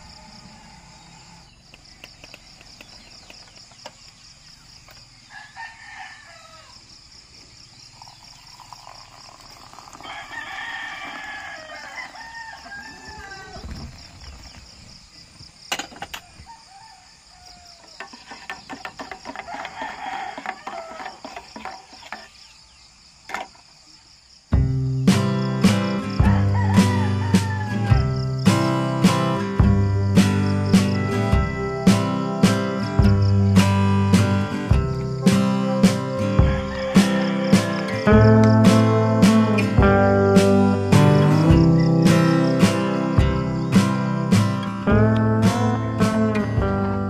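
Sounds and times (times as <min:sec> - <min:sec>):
crickets chirring: 0:00.0 - 0:47.0
rooster crowing: 0:05.3 - 0:06.8, 0:09.9 - 0:13.8, 0:16.1 - 0:18.1, 0:19.3 - 0:21.2, 0:26.1 - 0:28.2, 0:35.6 - 0:38.1.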